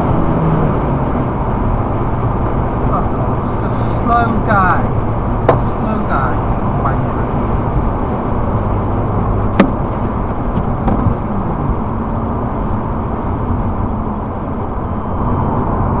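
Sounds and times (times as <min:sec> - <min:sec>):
car road and engine noise: 0:00.0 - 0:16.0.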